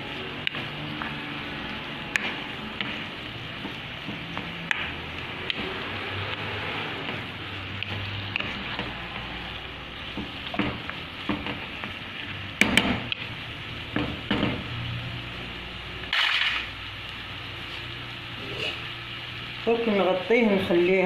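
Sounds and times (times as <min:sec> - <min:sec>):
meat sizzling in a frying pan: 0:00.0 - 0:21.0.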